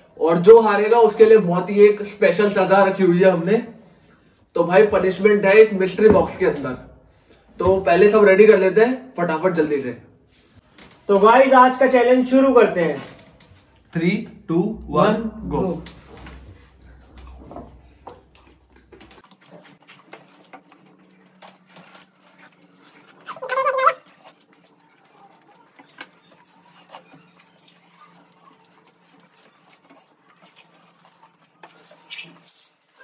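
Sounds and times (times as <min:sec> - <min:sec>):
steady low hum: 0:13.8 - 0:19.2
pet crying: 0:23.2 - 0:24.2.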